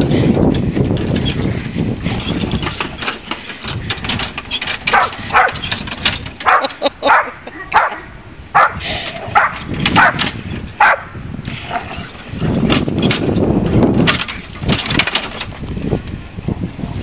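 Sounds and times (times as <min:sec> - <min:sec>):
dog barking: 0:04.9 - 0:05.6, 0:06.4 - 0:08.8, 0:09.4 - 0:10.2, 0:10.8 - 0:11.1.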